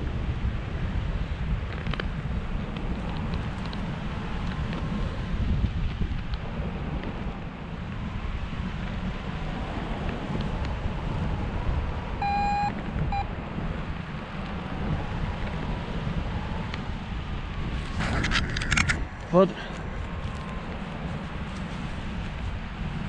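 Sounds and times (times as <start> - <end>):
wind buffeting microphone: 0.0 - 23.0
short electronic beeps: 12.2 - 13.3.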